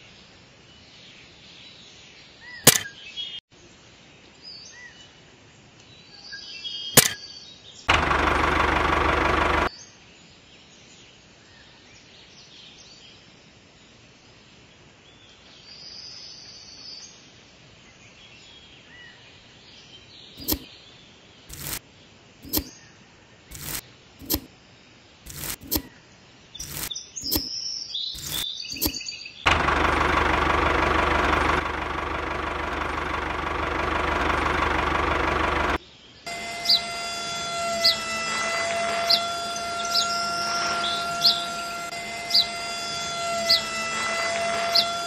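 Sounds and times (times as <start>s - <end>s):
small electric motor whining: 7.9s - 9.7s, 20.4s - 20.6s, 21.5s - 21.8s, 22.4s - 22.7s, 23.5s - 24.5s, 25.3s - 25.9s, 26.6s - 27.5s, 28.2s - 45.0s
short sharp bursts: 21.5s - 21.8s, 23.5s - 24.5s, 25.3s - 25.9s, 26.6s - 27.5s, 28.2s - 45.0s
faint bird chirps: 33.7s - 45.0s.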